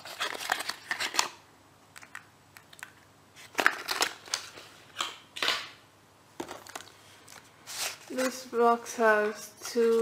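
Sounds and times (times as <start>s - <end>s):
cardboard rustling and scraping: 6.4s - 10.0s.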